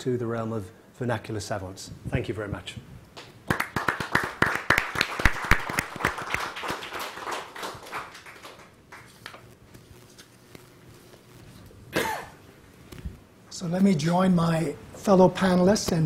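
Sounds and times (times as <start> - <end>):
audience applauding: 3.4 - 9.2.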